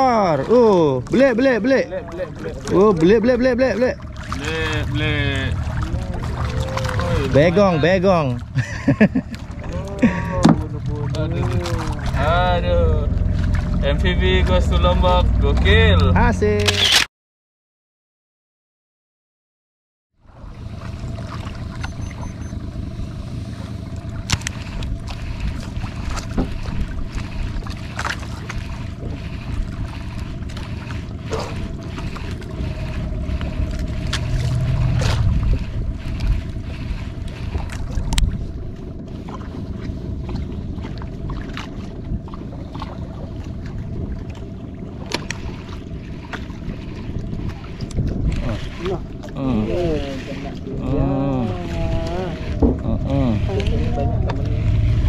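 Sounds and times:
boat engine hum: 0.0 - 17.0, 20.1 - 55.0
water noise: 0.0 - 17.1, 20.2 - 55.0
wind: 0.0 - 17.1, 20.1 - 55.0
knocks against boat hull: 10.4 - 10.6.

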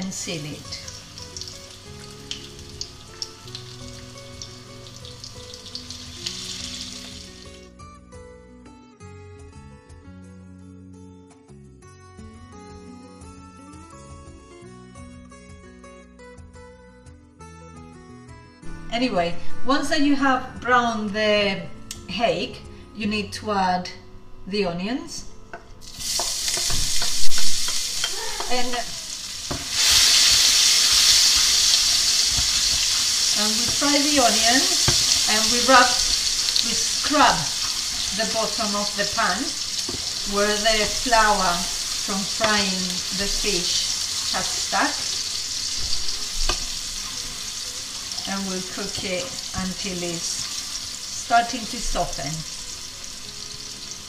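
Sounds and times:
soft background guitar music: 0.0 - 54.0
fish frying in hot oil: 0.4 - 7.6, 25.8 - 54.0
crackles and pops of frying: 0.4 - 7.7, 25.8 - 54.0.

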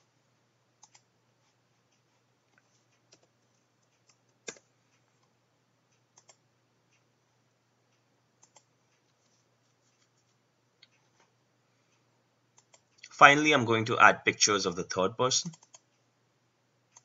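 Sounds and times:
mouse and keyboard clicks: 2.5 - 5.3, 6.2 - 6.4, 8.4 - 9.2, 12.6 - 13.1, 15.5 - 15.9.

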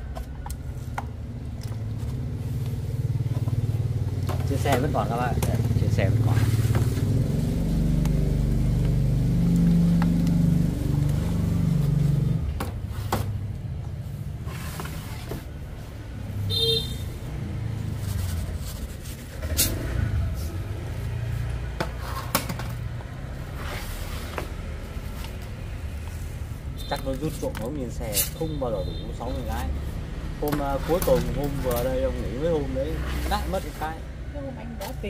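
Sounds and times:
rustles: 17.8 - 22.3.

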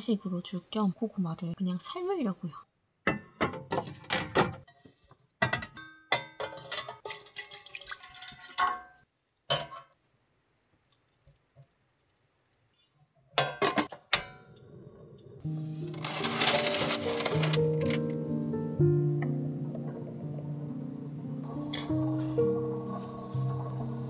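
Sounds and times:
metal pot and lid clattering: 3.1 - 7.6, 9.5 - 9.9, 13.4 - 14.5.

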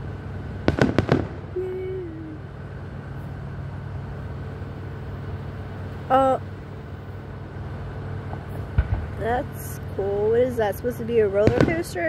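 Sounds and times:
firework bangs: 0.0 - 1.7, 8.2 - 9.8, 11.4 - 12.0
low background hum: 0.0 - 12.0.

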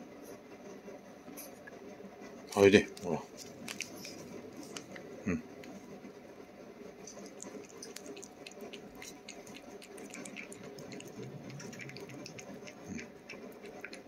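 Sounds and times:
cat licking and eating: 2.5 - 6.1, 6.8 - 14.0.

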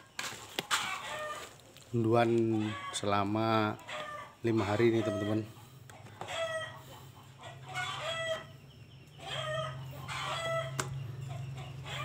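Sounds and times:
roosters crowing: 0.0 - 12.0.

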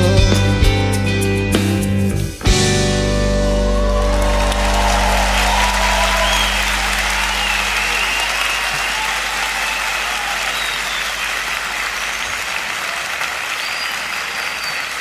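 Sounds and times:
audience applauding and cheering: 3.3 - 15.0
whistles: 3.8 - 15.0.

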